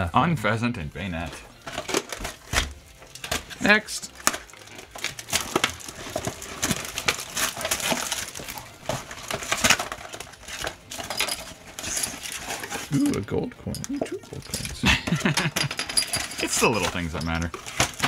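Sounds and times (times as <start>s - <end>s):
packaging crinkling: 1.2s - 13.2s, 16.1s - 18.0s.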